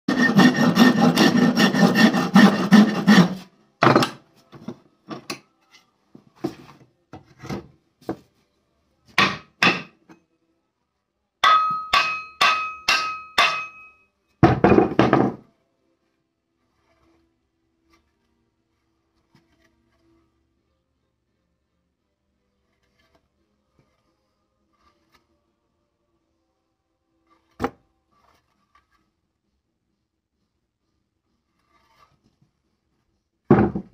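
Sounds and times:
file rasping on wood: 0:00.1 - 0:03.5, 0:16.6 - 0:17.3.

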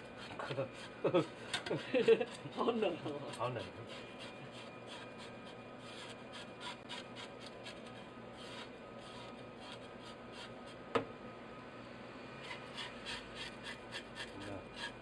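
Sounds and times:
knife scraping fish scales: 0:03.3 - 0:10.8, 0:12.4 - 0:15.0.

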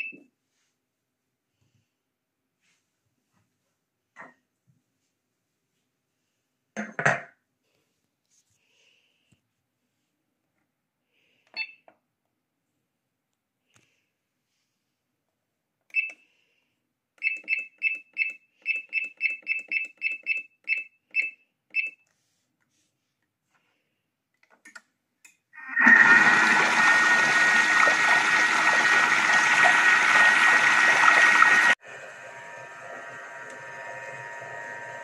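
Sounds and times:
electronic appliance beeping: 0:00.0 - 0:00.2, 0:17.2 - 0:22.0, 0:25.8 - 0:35.0.

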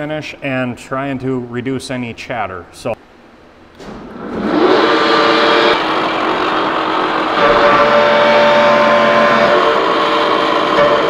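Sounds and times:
boring mill running: 0:04.0 - 0:11.0.

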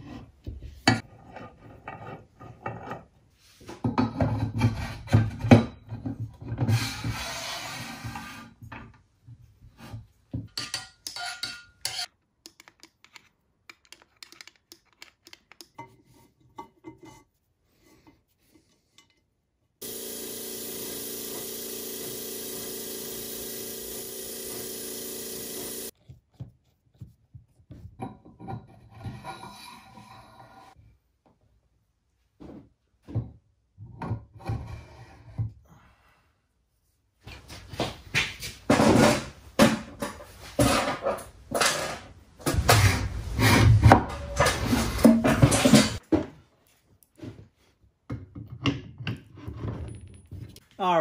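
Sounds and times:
metal casting scraping and clattering: 0:40.0 - 0:46.0.

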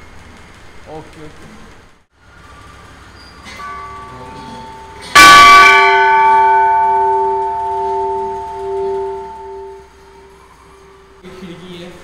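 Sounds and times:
signal bell ringing: 0:03.5 - 0:11.2.

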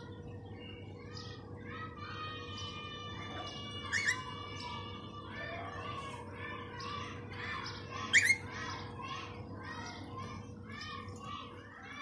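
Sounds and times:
parakeet squawks: 0:03.8 - 0:04.3, 0:08.0 - 0:08.5
parakeet calling: 0:03.8 - 0:04.8, 0:08.0 - 0:08.5.

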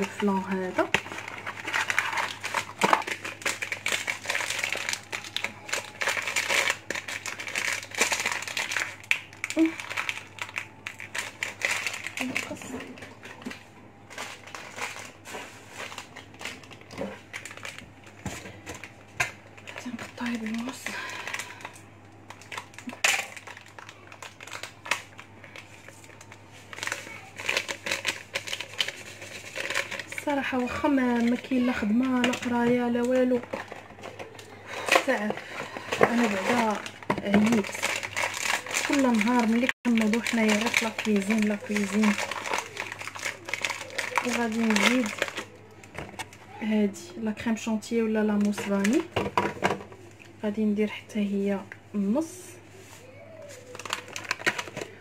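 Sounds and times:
foil sachet crinkling and tearing: 0:00.0 - 0:46.4, 0:48.3 - 0:49.1, 0:53.0 - 0:55.0
scissors cutting plastic: 0:22.4 - 0:25.7, 0:35.9 - 0:46.3.

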